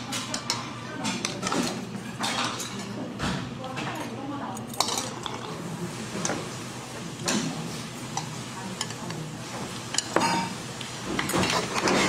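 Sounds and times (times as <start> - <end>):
tableware clicking and tapping: 9.9 - 12.0.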